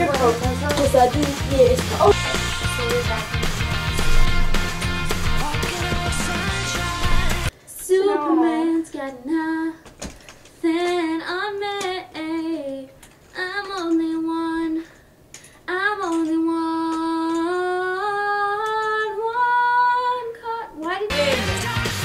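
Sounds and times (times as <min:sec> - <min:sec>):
recorded band music: 0:00.0 - 0:07.5, 0:21.1 - 0:22.0
girl singing unaccompanied: 0:05.3 - 0:09.9, 0:10.6 - 0:15.0, 0:15.7 - 0:21.9.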